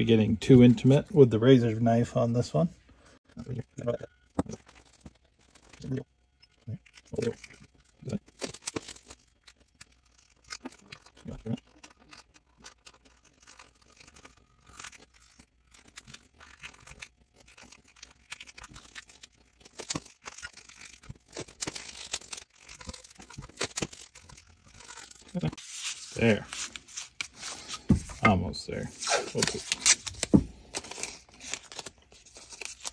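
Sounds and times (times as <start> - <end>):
tape ripping and crackling: 6.6 - 27.9, 28.9 - 32.9.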